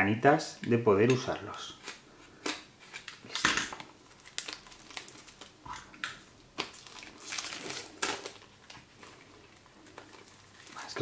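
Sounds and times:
plastic shrink-wrap crackling: 1.8s - 5.6s, 6.4s - 11.0s.

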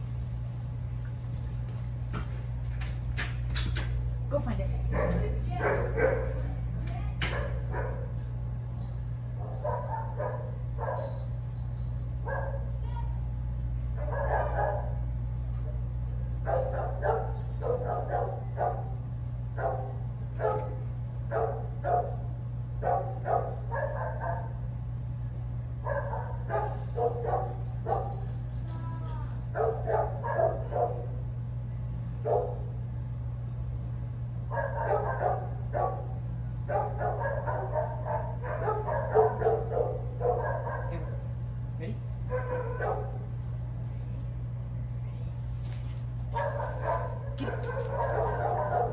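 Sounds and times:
steady low hum: 0.0s - 48.9s
dog barking: 4.9s - 6.5s, 7.3s - 8.2s, 9.4s - 11.2s, 12.2s - 12.8s, 14.0s - 15.0s, 16.4s - 19.0s, 19.6s - 24.6s, 25.8s - 28.2s, 29.5s - 31.2s, 32.2s - 32.7s, 34.5s - 41.2s, 42.3s - 43.2s, 46.3s - 48.9s.

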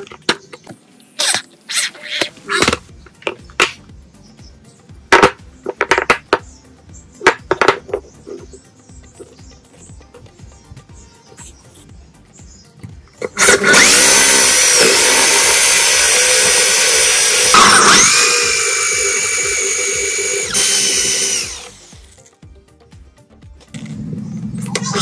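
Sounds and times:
power tool whining: 13.2s - 22.3s.

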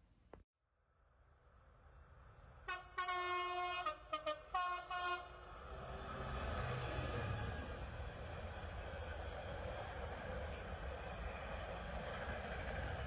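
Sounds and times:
train rumbling: 2.1s - 13.0s
locomotive horn blasts: 2.7s - 5.3s.

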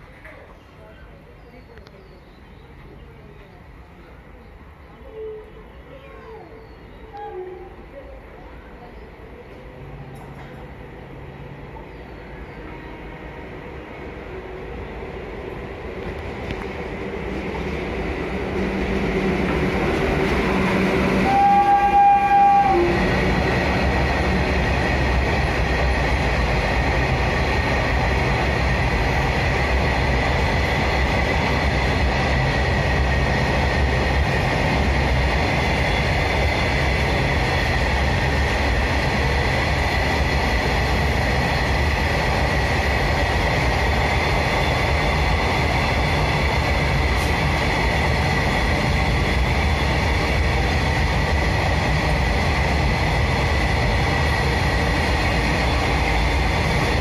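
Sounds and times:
locomotive horn blast: 21.0s - 23.1s.

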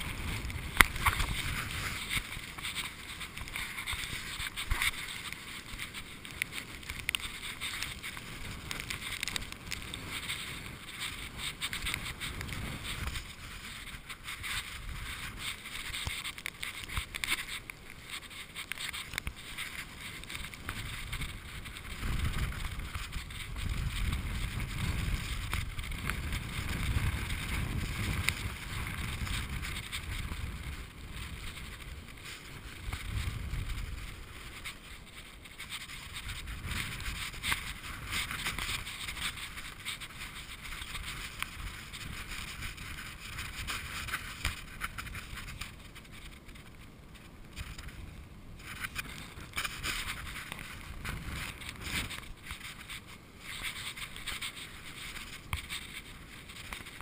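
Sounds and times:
wind buffeting microphone: 0.0s - 17.2s, 19.0s - 46.8s.

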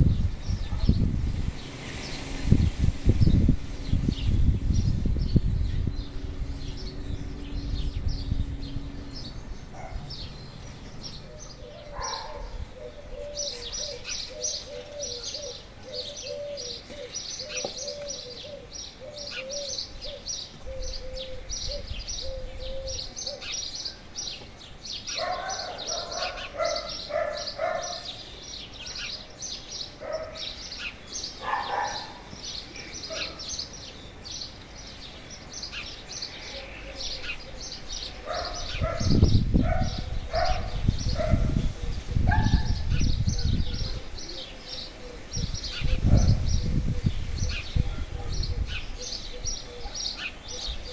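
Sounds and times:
small birds chirping: 0.0s - 50.9s
louder lower bird calls: 35.4s - 50.9s.

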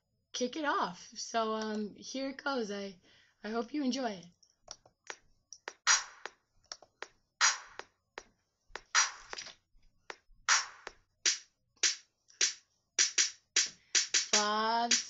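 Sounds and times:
hip-hop drum beat: 5.1s - 7.9s, 8.8s - 9.5s, 10.1s - 15.0s.

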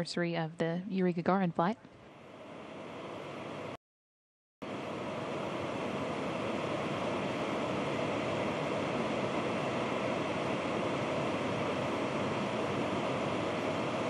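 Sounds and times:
steady rushing noise: 2.1s - 3.8s, 4.6s - 14.0s.

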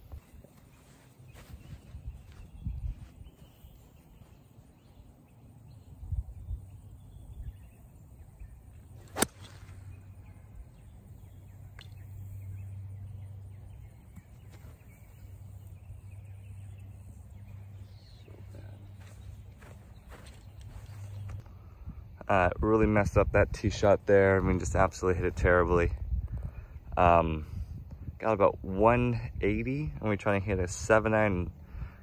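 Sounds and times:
golf club striking ball: 9.1s - 10.0s.

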